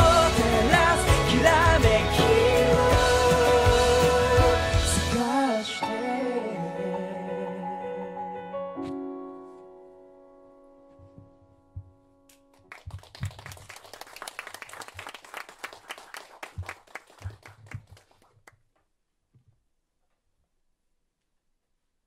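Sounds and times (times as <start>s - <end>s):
audience applauding: 12.7s - 18.5s.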